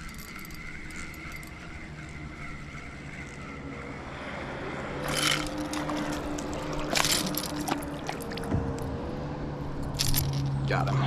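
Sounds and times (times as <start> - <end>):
fishing reel cranking: 0.0 - 4.0, 5.0 - 8.4.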